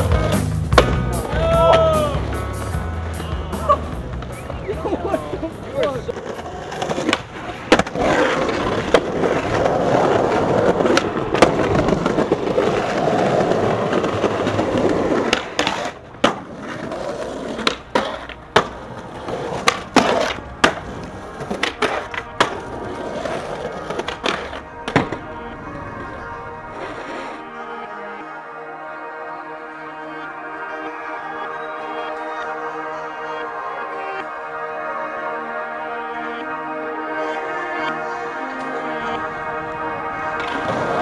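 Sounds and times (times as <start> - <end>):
skateboard deck clacking: 0.0 - 27.4, 38.6 - 41.0
skateboard wheels rolling on concrete: 0.0 - 28.2, 36.8 - 41.0.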